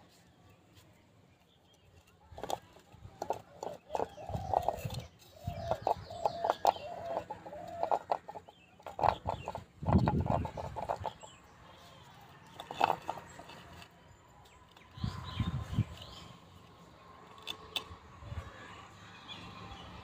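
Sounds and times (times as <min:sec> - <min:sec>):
chickens clucking: 0:02.3 - 0:11.4.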